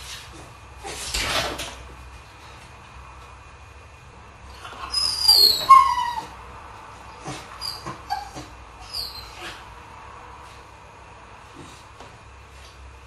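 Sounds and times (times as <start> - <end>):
dog whining: 4.5 - 6.5, 7.1 - 9.7.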